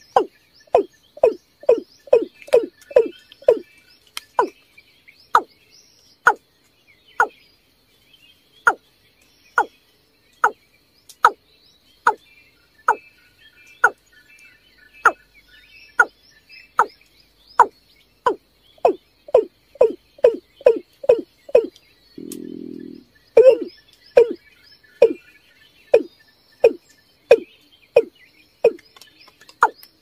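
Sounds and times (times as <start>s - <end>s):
faint high chirps: 17.6s - 24.4s, 25.0s - 25.2s
bird deep falling calls: 18.3s - 24.4s.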